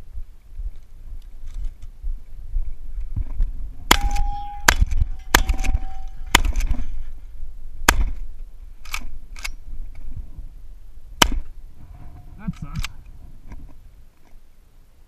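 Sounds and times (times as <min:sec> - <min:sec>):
steel target ringing: 0:03.8 - 0:07.2
shotgun firing: 0:03.9 - 0:06.8, 0:07.8 - 0:08.2, 0:11.2 - 0:11.5.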